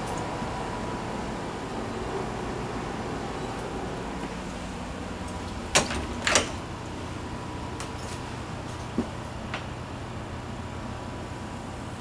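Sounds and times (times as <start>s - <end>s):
door latch clicking: 5.7s - 6.7s.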